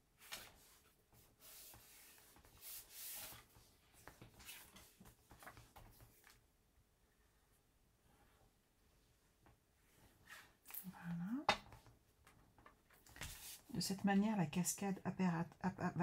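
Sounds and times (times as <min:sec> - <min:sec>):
cardstock rustling and sliding: 0:00.2 - 0:06.4.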